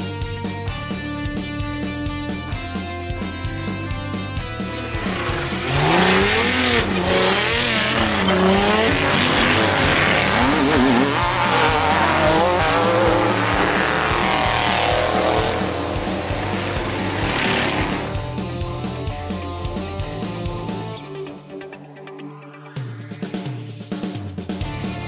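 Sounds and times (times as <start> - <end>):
off-road engines revving: 1.1 - 21.0.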